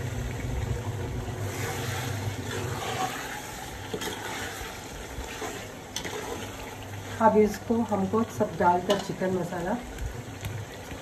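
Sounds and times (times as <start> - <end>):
steady low hum: 0.0 - 10.8
spoon stirring in a pot: 1.5 - 7.6, 8.4 - 9.3.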